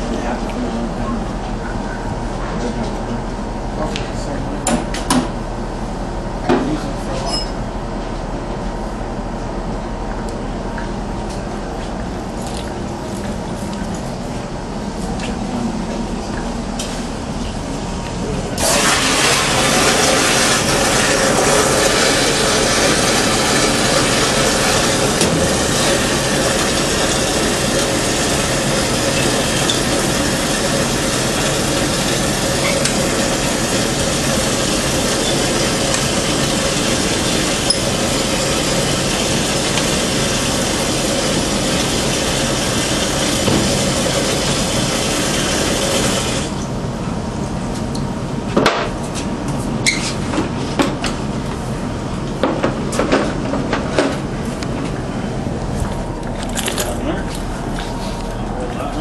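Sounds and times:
water filling a bucket: 0:18.6 - 0:46.6.

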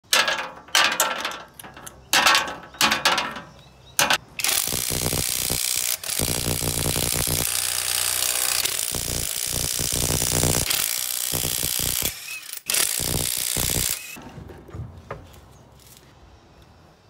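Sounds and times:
short rattling bursts: 0:04.4 - 0:14.2.

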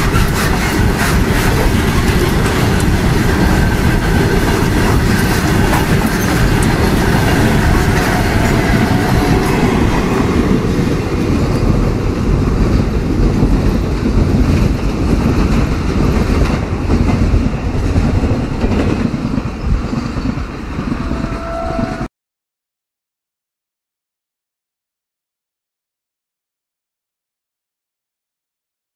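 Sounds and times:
train wheels clattering on rails: 0:00.0 - 0:22.1.

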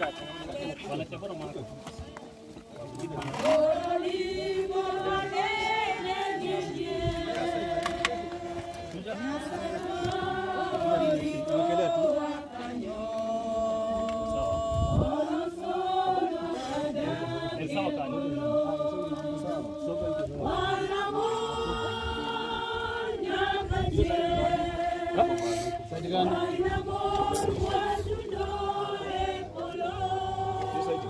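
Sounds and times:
group singing without instruments: 0:00.0 - 0:31.0.

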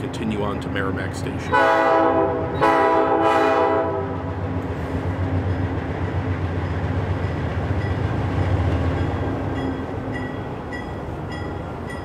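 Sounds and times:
train rumbling: 0:00.0 - 0:12.0
locomotive horn: 0:01.5 - 0:04.3.

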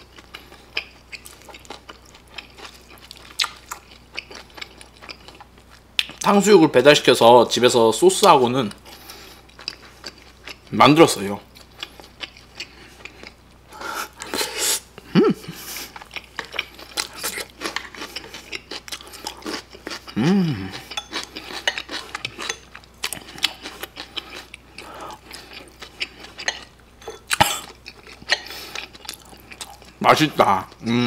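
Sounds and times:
wet chewing: 0:00.0 - 0:06.3, 0:08.8 - 0:10.7, 0:15.6 - 0:30.0.

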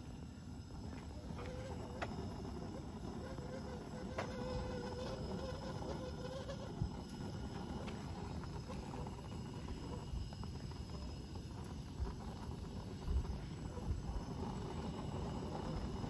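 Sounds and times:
gas grill hissing: 0:00.0 - 0:16.0.

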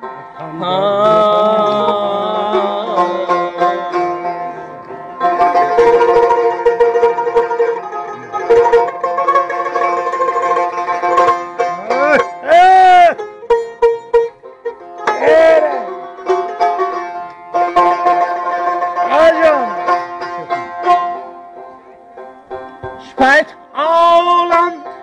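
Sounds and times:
plucked lute playing: 0:00.0 - 0:25.0
wordless vocal cries: 0:11.7 - 0:13.2, 0:15.0 - 0:16.1.

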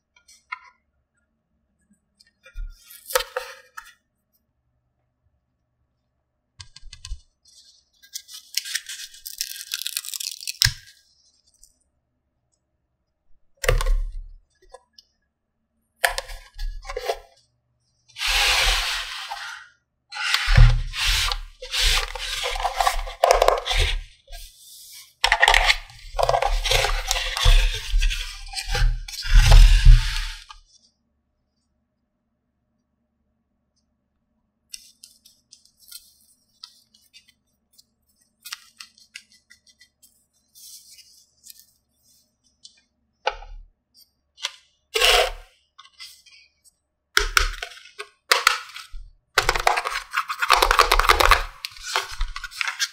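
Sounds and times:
plastic packaging crinkling and tearing: 0:08.2 - 0:11.0, 0:48.5 - 0:52.9.

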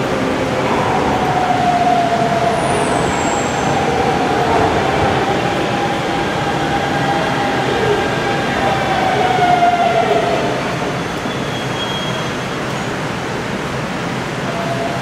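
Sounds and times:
train rumble: 0:00.0 - 0:15.0.

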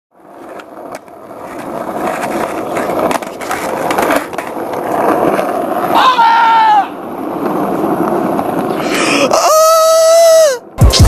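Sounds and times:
skateboard clacks: 0:00.2 - 0:08.8
skateboard wheels rolling: 0:00.2 - 0:10.8.

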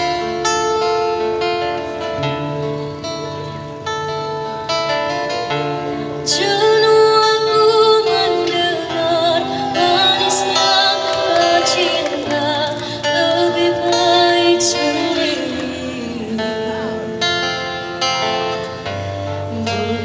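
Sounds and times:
electric guitars: 0:00.0 - 0:20.0
strummed acoustic guitar: 0:00.0 - 0:20.0
girl singing through microphone: 0:06.2 - 0:17.8, 0:19.2 - 0:20.0.

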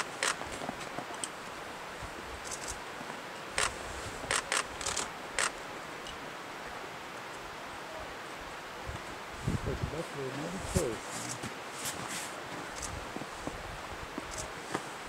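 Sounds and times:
sharp clicks: 0:00.0 - 0:00.4, 0:03.6 - 0:05.6
outdoor background hiss: 0:00.0 - 0:15.0.

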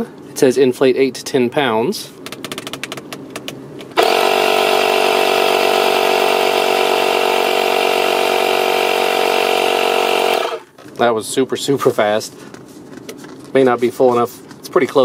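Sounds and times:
air compressor humming: 0:03.8 - 0:10.9.

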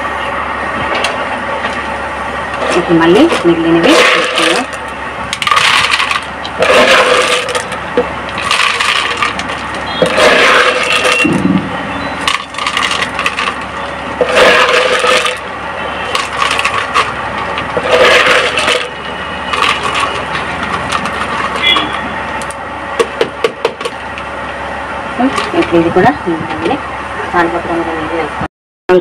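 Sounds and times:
clay pebbles clattering into container: 0:02.7 - 0:11.4, 0:12.2 - 0:15.5, 0:16.1 - 0:21.9.

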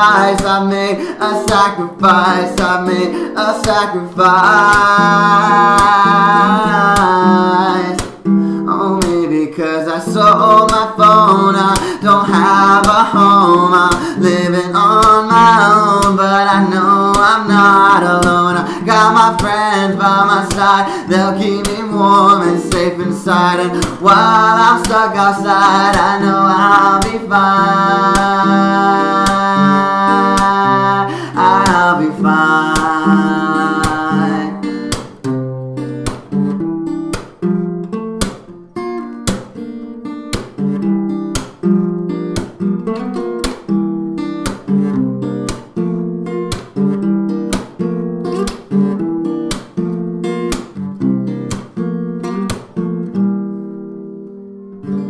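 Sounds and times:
acoustic guitar strumming: 0:00.0 - 0:55.0.

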